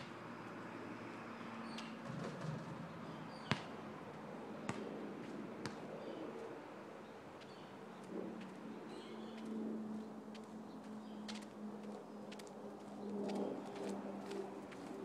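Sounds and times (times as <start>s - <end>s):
faint birdsong: 0.0s - 15.0s
steady low hum: 0.0s - 15.0s
basketball bouncing on asphalt: 1.6s - 6.0s.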